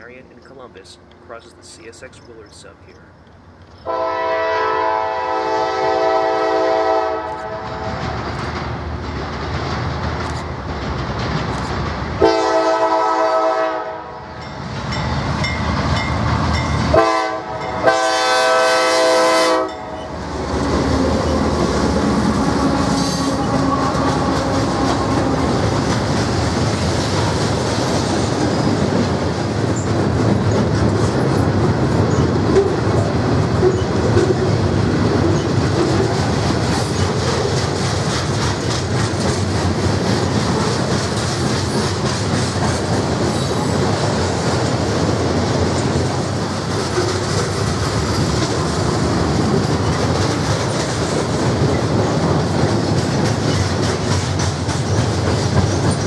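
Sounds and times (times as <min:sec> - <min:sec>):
diesel locomotives passing: 0:00.0 - 0:56.0
locomotive horn blasts: 0:03.8 - 0:08.0, 0:12.2 - 0:14.3, 0:16.9 - 0:20.0
train wheels clattering on rails: 0:07.4 - 0:13.1, 0:19.7 - 0:56.0.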